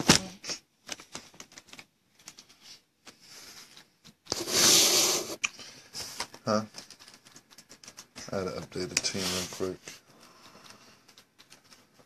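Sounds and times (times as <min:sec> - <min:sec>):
typing on a keyboard: 0:00.8 - 0:02.5, 0:06.2 - 0:09.1, 0:10.1 - 0:12.0.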